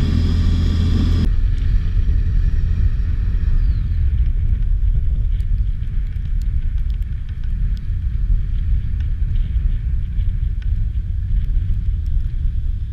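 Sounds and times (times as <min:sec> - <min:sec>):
distant engine running: 0:00.0 - 0:06.4
wind buffeting microphone: 0:00.0 - 0:12.9.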